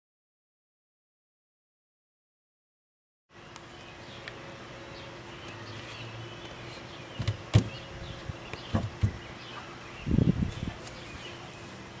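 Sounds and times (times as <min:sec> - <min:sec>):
faint birdsong: 0:03.3 - 0:12.0.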